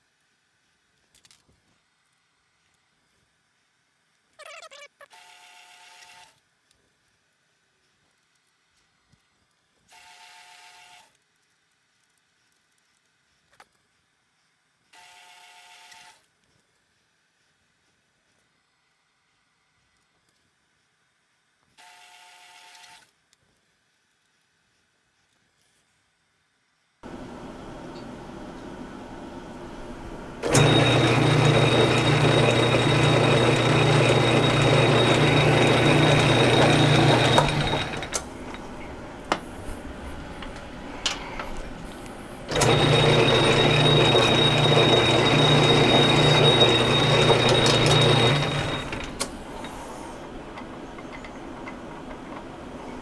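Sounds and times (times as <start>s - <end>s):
metal lathe humming with whine: 30.4s - 38.8s, 42.4s - 49.9s.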